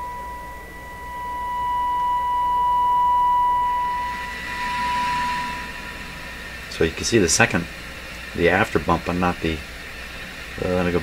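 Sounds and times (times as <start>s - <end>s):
steady high test tone: 0.0s - 8.5s.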